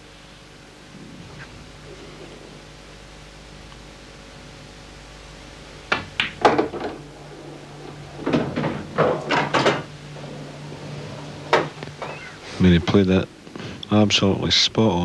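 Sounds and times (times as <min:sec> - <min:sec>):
cue striking cue ball: 0:05.9 - 0:09.9
pool balls clacking: 0:05.9 - 0:13.1.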